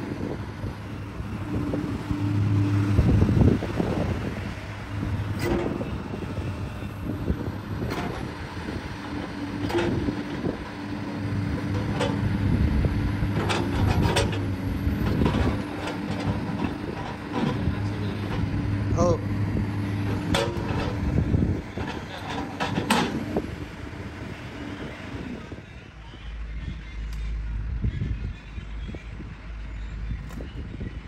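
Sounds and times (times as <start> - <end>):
excavator diesel engine running: 0.0 - 31.0.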